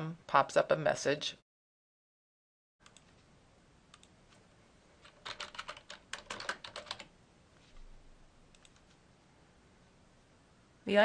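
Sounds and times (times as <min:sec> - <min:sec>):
faint keyboard typing: 0:02.8 - 0:03.2, 0:03.9 - 0:07.1, 0:08.5 - 0:09.0.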